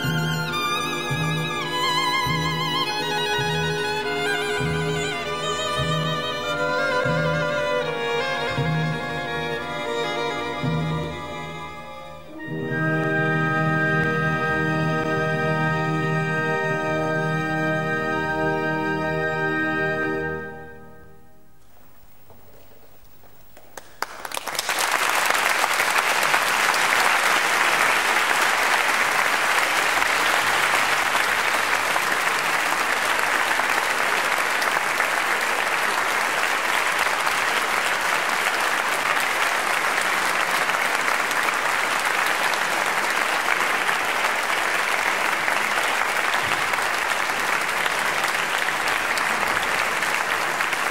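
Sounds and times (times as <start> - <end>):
audience applauding: 0.0 - 11.4, 22.1 - 50.9.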